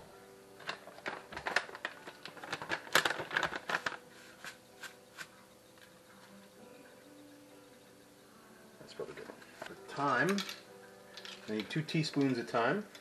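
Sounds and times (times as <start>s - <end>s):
plastic bag crinkling: 0.7s - 4.4s.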